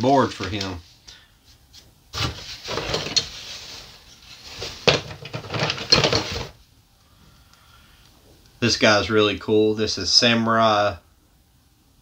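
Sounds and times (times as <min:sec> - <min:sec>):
cardboard and packaging rustling: 0:02.1 - 0:06.6.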